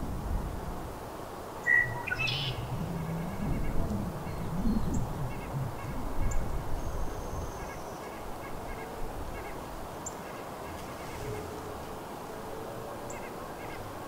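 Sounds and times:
songbird chirping: 0:01.6 - 0:08.2.

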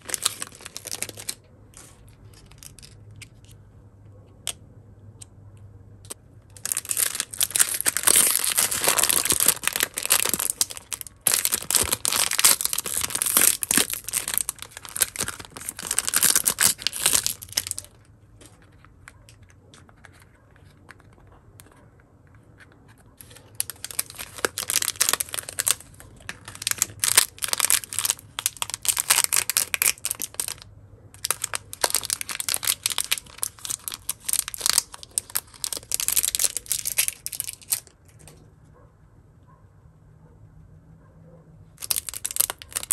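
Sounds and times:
foil bag tearing: 0:00.0 - 0:01.4, 0:06.6 - 0:17.9, 0:23.3 - 0:30.6, 0:31.2 - 0:37.8, 0:41.8 - 0:42.9
plastic packaging crinkling: 0:00.0 - 0:03.5, 0:06.5 - 0:21.3, 0:23.2 - 0:38.2, 0:41.8 - 0:42.9.

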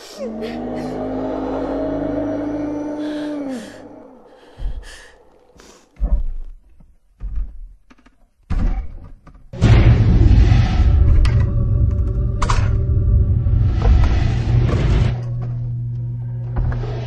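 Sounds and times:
faint breaths: 0:03.0 - 0:06.0.

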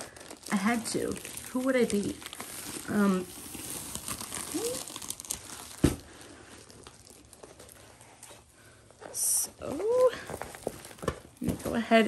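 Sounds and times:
plastic film crinkle: 0:00.0 - 0:12.0.

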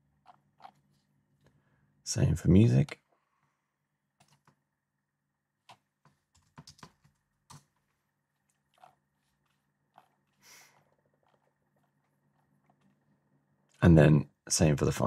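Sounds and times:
keyboard keystrokes: 0:05.7 - 0:07.7.

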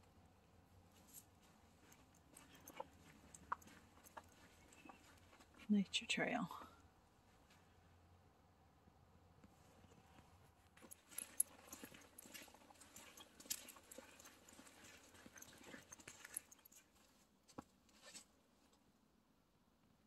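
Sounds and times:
soft crunching footsteps on trail: 0:00.9 - 0:05.7, 0:09.5 - 0:18.4.

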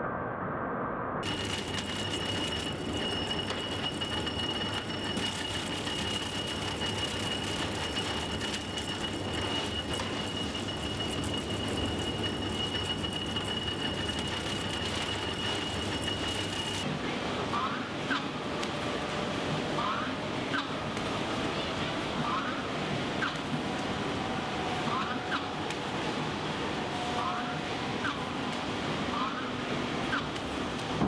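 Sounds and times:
machinery clattering: 0:01.2 - 0:16.8.

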